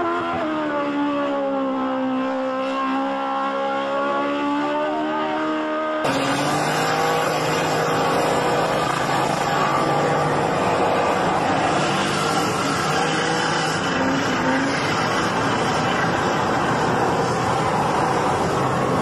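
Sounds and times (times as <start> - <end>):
car road and wind roar: 0.0 - 19.0
small engine at high revs: 2.2 - 19.0
spinning tyres hissing: 6.0 - 19.0.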